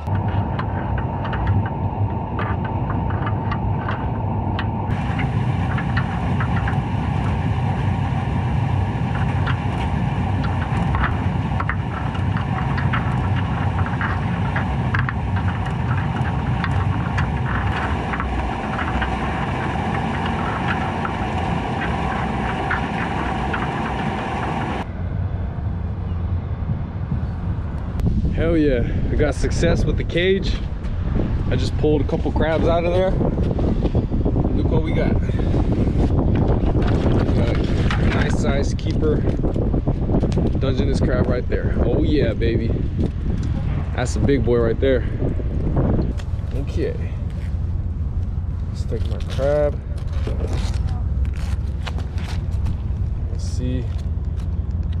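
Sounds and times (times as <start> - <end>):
sharp clicks and ticks: 0.0 - 24.9
faint steady whine: 0.0 - 55.0
underwater engine rumble: 0.0 - 55.0.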